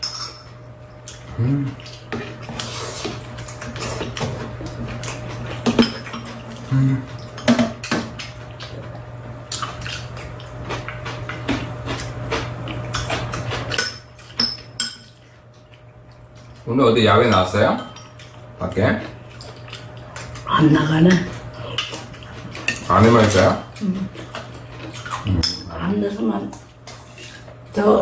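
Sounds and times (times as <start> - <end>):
spoons clinking against bowls: 0.0 - 0.6, 13.0 - 15.2.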